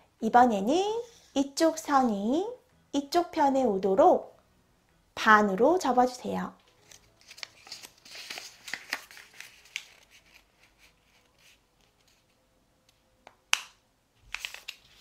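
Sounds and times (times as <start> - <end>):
paper rustling and crinkling: 6.6 - 12.4, 14.2 - 15.0.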